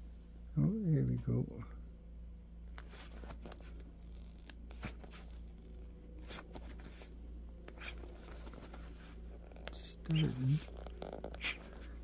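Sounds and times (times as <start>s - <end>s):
steady low hum: 0.0s - 12.0s
short high squeaks: 3.0s - 3.5s, 4.2s - 5.2s, 6.2s - 6.6s, 7.7s - 8.5s, 9.7s - 12.0s.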